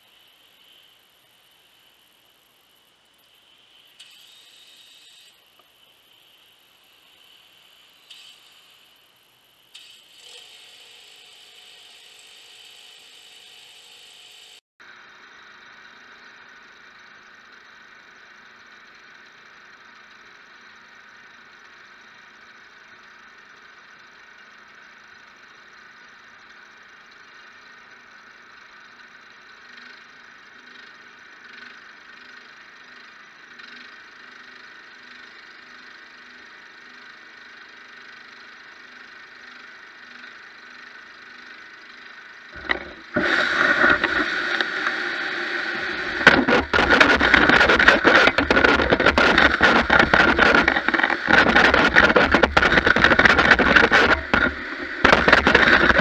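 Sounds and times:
faint mechanical hum: 0.0 - 56.0
vacuum motor running: 42.5 - 56.0.

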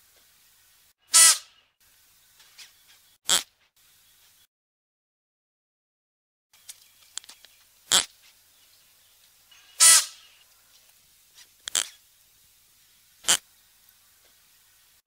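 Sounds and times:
antelope harsh calls: 1.1 - 1.6, 9.5 - 10.4
faint clicks: 6.6 - 7.7.

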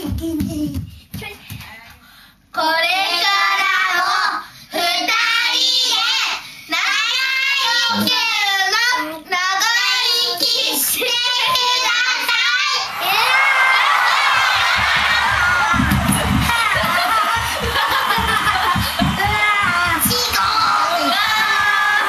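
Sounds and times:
children laughing: 12.9 - 22.0.

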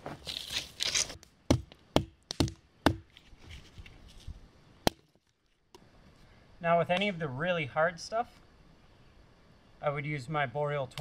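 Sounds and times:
hatchet chopping branches: 0.8 - 3.2, 4.8 - 5.2.

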